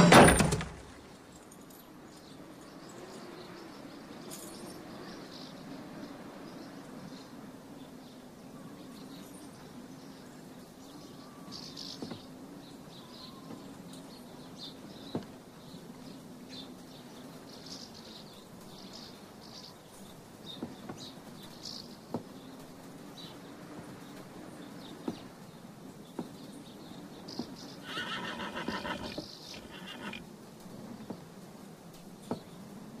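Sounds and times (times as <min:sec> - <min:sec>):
sharp knocks: 0:00.0 - 0:01.0
horse whinnying: 0:27.8 - 0:30.2.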